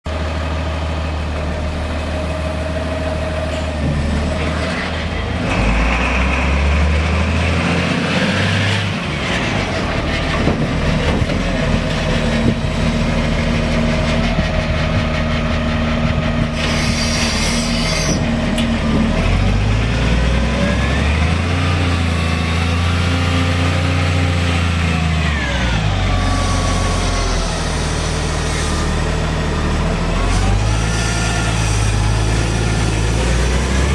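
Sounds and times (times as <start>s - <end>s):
diesel engine running: 0.1s - 33.9s.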